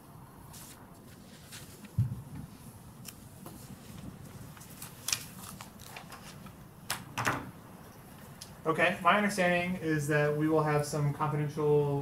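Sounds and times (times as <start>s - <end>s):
papers rustling: 3.4s - 6.6s.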